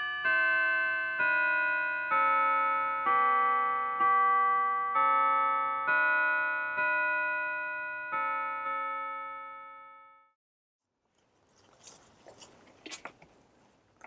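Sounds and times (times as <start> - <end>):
bell-like keyboard notes: 0.0 - 10.4
hands clicking and rustling: 11.2 - 14.0.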